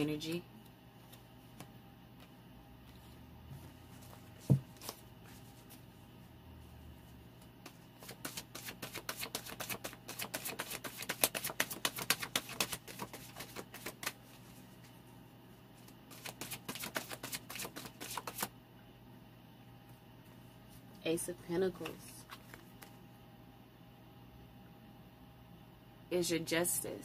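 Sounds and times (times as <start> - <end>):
cards being shuffled: 4.0 - 5.9, 7.4 - 14.6, 15.8 - 18.5, 21.8 - 23.0.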